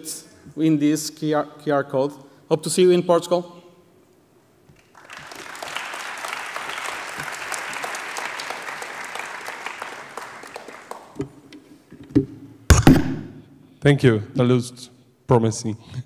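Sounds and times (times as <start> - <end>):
audience applauding: 4.8 - 11.4.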